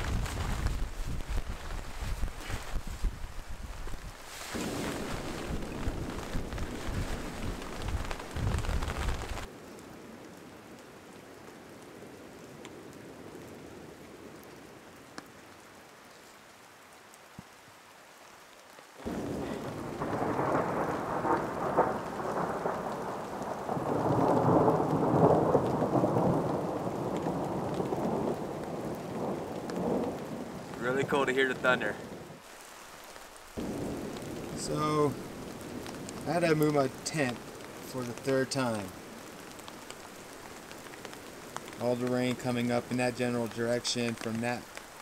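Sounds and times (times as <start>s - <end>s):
thunder rumbling: 0.0s - 9.5s, 19.0s - 32.4s, 33.5s - 44.7s
wind buffeting microphone: 0.0s - 9.5s
rain hissing and pattering: 0.0s - 45.0s.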